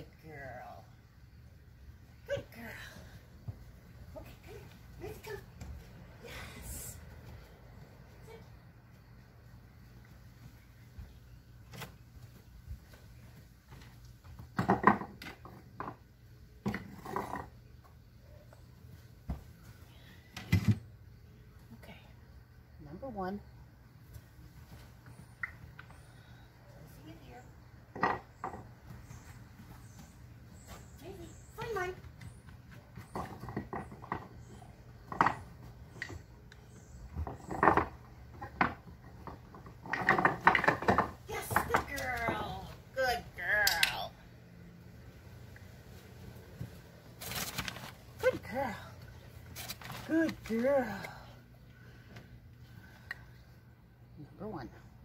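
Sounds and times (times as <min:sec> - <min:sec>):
wooden blocks knocking on deck boards: 0:27.9 - 0:28.7, 0:37.2 - 0:41.9.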